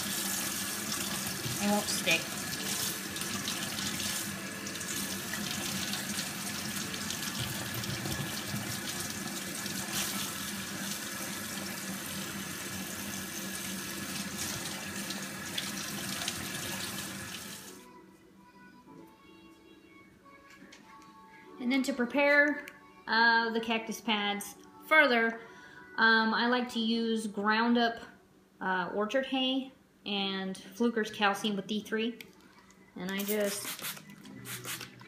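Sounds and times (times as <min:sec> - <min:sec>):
faucet running into sink: 0:00.0 - 0:17.7.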